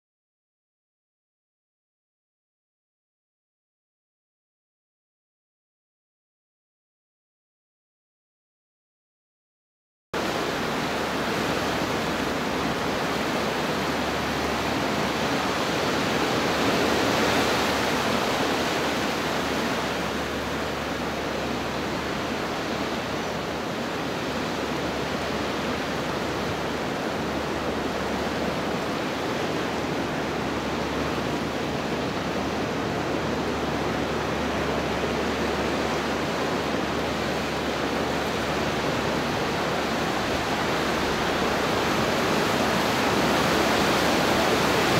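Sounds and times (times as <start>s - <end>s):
ocean surf churning through rocks: 10.2s - 44.9s.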